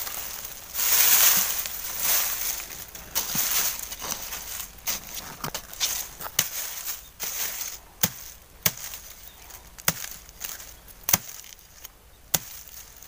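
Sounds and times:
blade chopping into soil: 8.0s - 9.0s, 9.8s - 11.5s, 12.3s - 12.8s.

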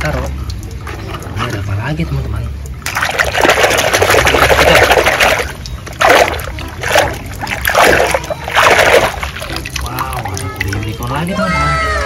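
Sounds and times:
hand splashing through soapy water: 2.8s - 10.7s.

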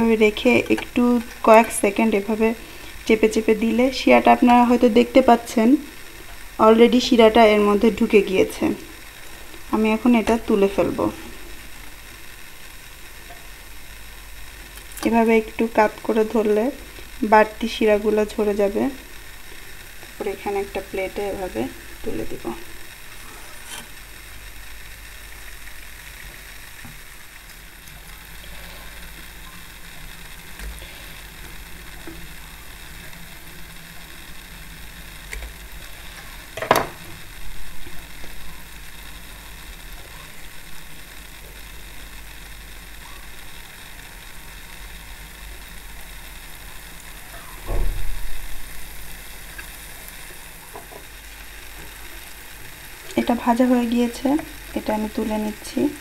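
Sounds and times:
batter sizzling in hot oil: 0.0s - 56.0s.

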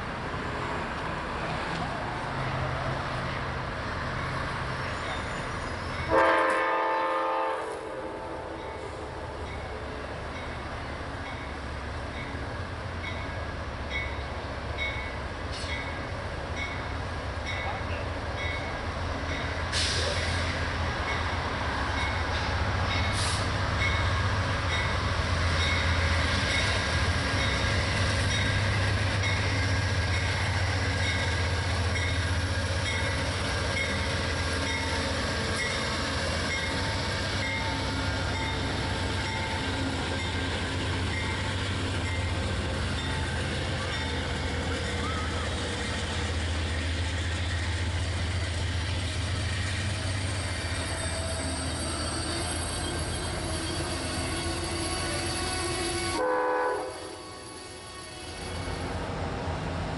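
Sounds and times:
train wheels rolling on rails: 8.5s - 56.3s.

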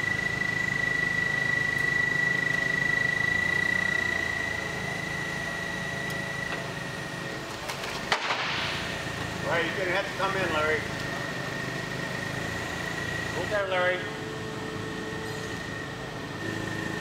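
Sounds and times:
high whine: 0.0s - 7.6s
forklift engine hum: 0.0s - 17.0s.

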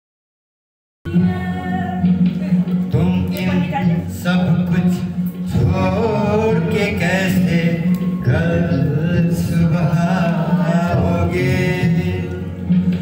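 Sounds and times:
low musical accompaniment: 1.1s - 13.0s
man singing chant-like melody: 2.8s - 13.0s.

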